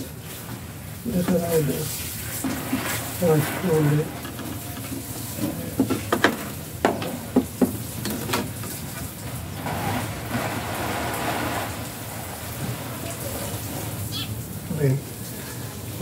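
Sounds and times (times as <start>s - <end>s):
board scraping against metal: 2.4s - 4.4s, 9.6s - 12.8s.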